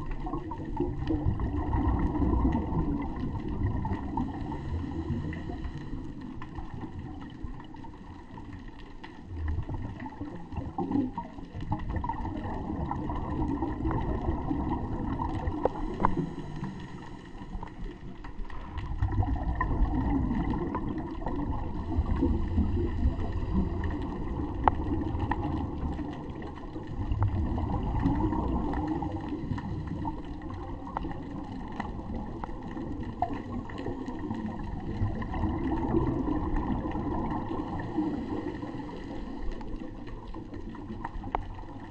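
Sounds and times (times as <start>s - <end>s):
underwater bubbles gurgling: 0.0s - 41.9s
diver breathing through regulator: 4.2s - 6.4s, 15.6s - 18.0s, 37.6s - 39.8s.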